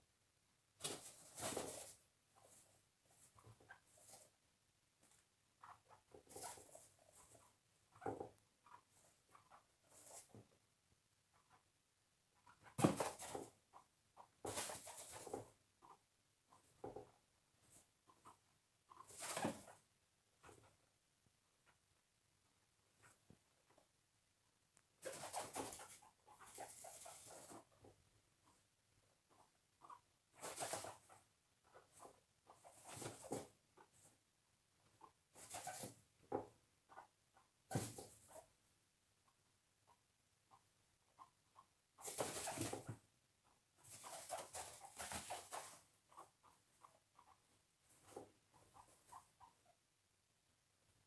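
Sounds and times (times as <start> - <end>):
guinea pig paws scrabbling: 0.8 - 4.4, 5.0 - 10.6, 11.3 - 20.9, 24.8 - 38.6, 39.2 - 49.8.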